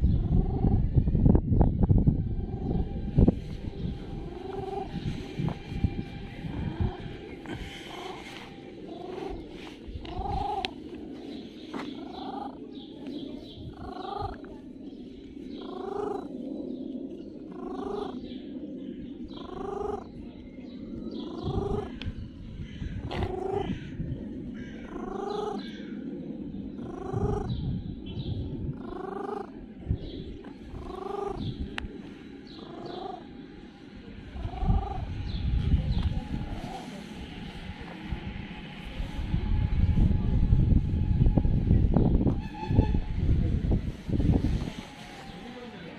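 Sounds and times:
cat purring: 11.9 - 12.6, 30.7 - 31.5, 32.6 - 33.2, 34.4 - 35.0.

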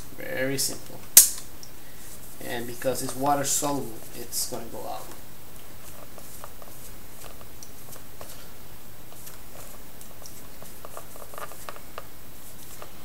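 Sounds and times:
steady hiss: 0.0 - 13.0
paper towel rubbing rollers: 5.8 - 13.0.

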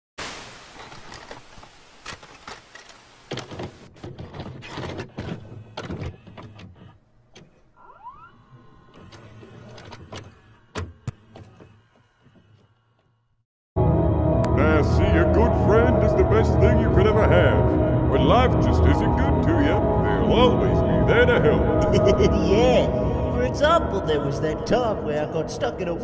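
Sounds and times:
mechanical clicks and clunks: 0.9 - 7.7, 8.8 - 12.9
low motor whir: 7.8 - 13.2.

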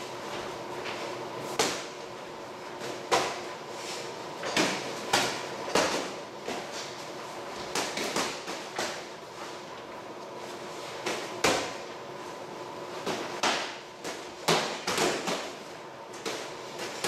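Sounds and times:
boxing gloves smacking: 13.1 - 15.6.

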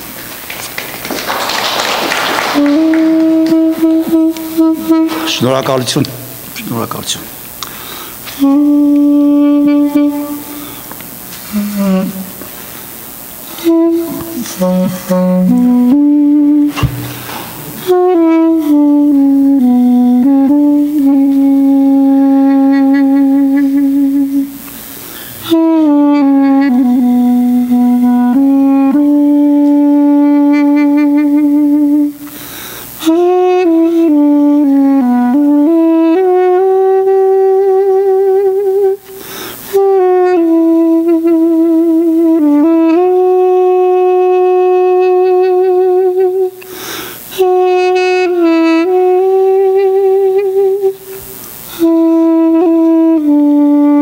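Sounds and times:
duduk melody: 2.4 - 6.5, 8.3 - 32.4, 33.0 - 46.6, 47.3 - 54.0
player breathing in: 7.6 - 8.3, 32.3 - 33.0, 39.1 - 39.7, 46.7 - 47.3.

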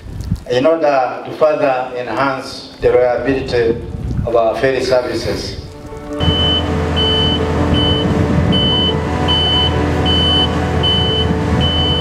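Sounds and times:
dredger engine running: 6.2 - 12.0
high warning beeper: 6.2 - 12.0.

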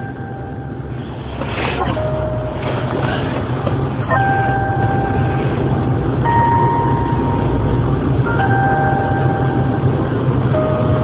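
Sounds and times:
phone line hum and hiss: 0.0 - 11.0
electronic hold music melody: 4.1 - 11.0.

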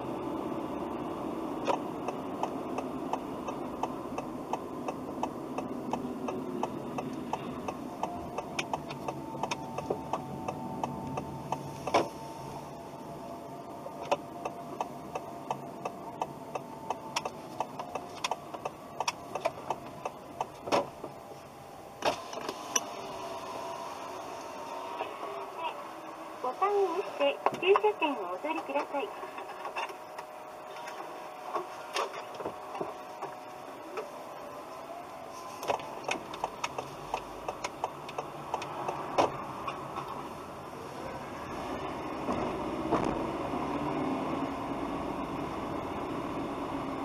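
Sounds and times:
car engine and road noise: 0.0 - 47.0
turn signal ticking: 1.5 - 21.3, 26.5 - 29.0, 35.6 - 40.3.

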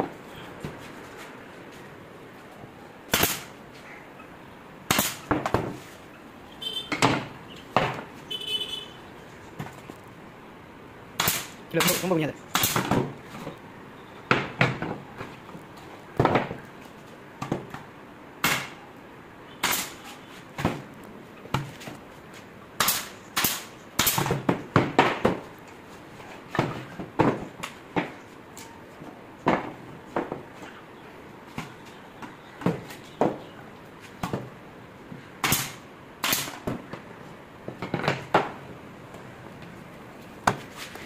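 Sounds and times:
pneumatic nailer shots: 3.1 - 3.6, 4.9 - 5.6, 11.2 - 13.1, 18.4 - 18.8, 19.6 - 20.0, 22.8 - 25.3, 35.4 - 36.8.

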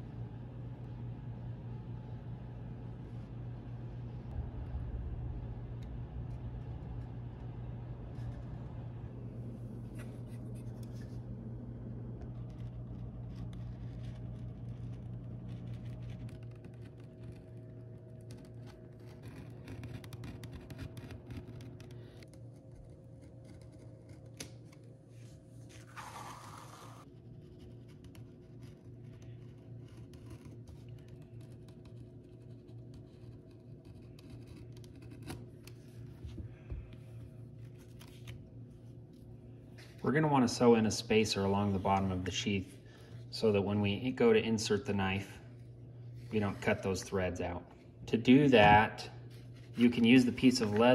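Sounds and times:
steady low hum: 0.0 - 50.9
knife cutting leather: 12.4 - 24.9, 27.4 - 36.0.

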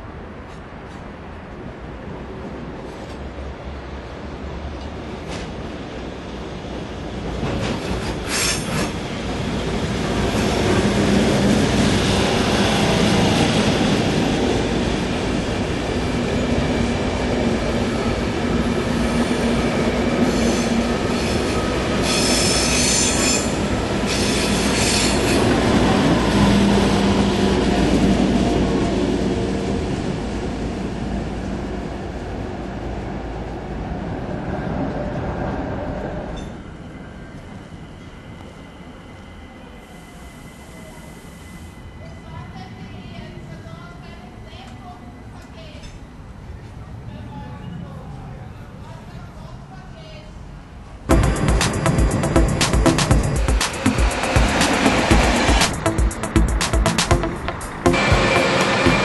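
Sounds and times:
train wheels clattering over rails: 7.1 - 14.2
high wheel squeal: 20.2 - 25.4.

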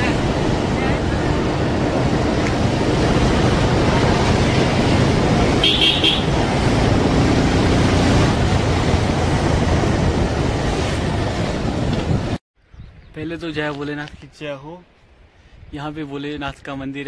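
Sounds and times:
road traffic noise: 0.0 - 12.4.

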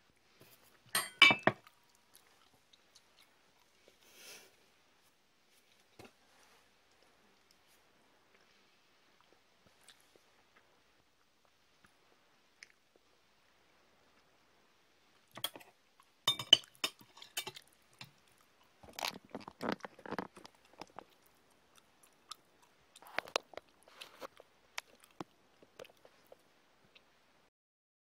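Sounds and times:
cutlery clinking on ceramic plate: 0.9 - 1.6, 15.4 - 15.7, 16.3 - 17.6.

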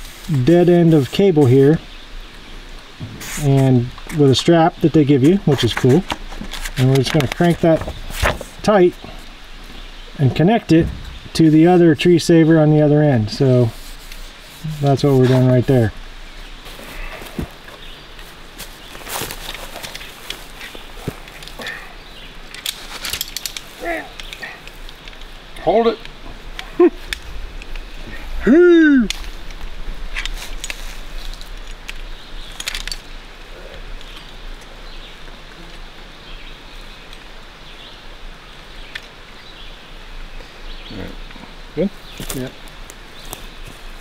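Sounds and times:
steady hiss: 0.0 - 44.0
rustling: 2.8 - 36.0.

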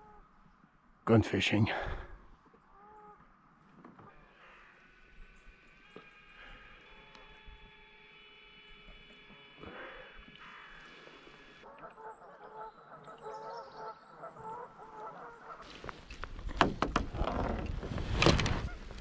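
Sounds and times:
honking bird calls: 11.6 - 15.6
rustling and knocks: 15.7 - 19.0.

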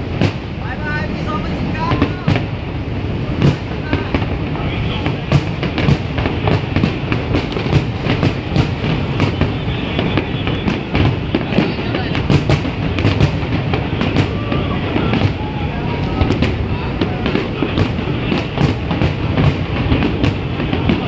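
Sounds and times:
continuous rumble: 0.0 - 21.0
fireworks bangs and crackles: 0.0 - 21.0.

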